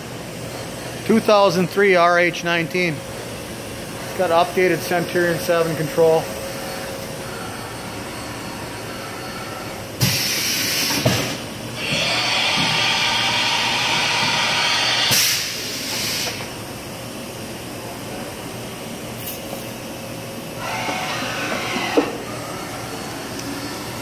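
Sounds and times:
compressed air hissing: 0:10.0 - 0:11.1, 0:14.8 - 0:16.5.

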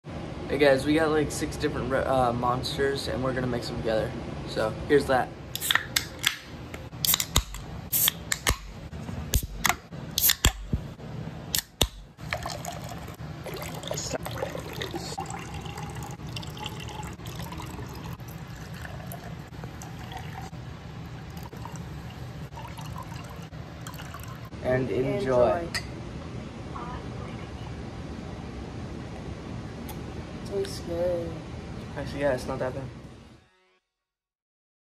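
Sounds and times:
cans clicking and knocking: 0:07.0 - 0:08.7
drink fizzing into a glass: 0:12.2 - 0:20.5, 0:21.2 - 0:24.5.

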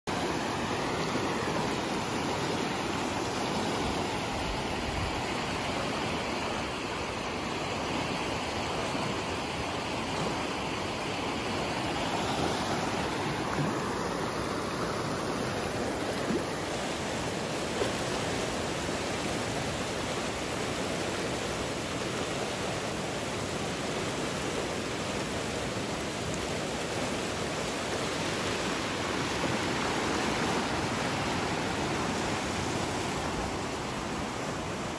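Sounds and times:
floodwater rushing: 0:00.1 - 0:34.9.

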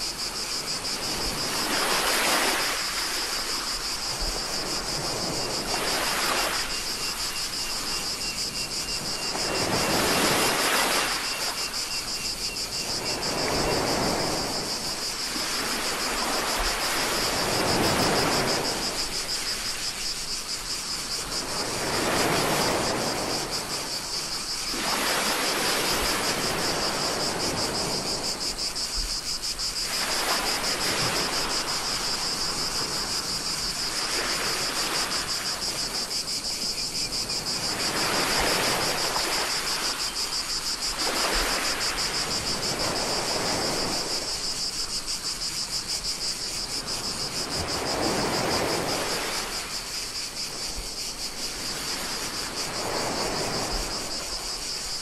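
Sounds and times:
small waves washing in: 0:00.0 - 0:36.7, 0:37.3 - 0:55.0
cicadas chorus: 0:00.0 - 0:55.0.

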